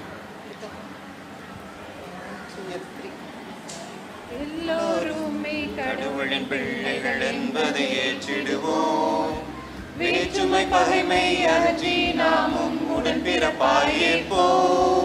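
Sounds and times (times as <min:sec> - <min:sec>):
women singing into a microphone: 0:04.3 - 0:15.0.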